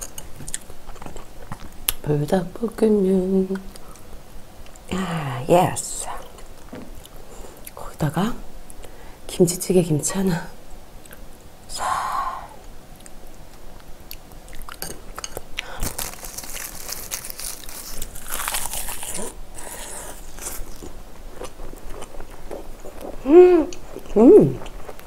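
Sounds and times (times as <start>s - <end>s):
crisp crunching while chewing: 14.1s - 25.0s.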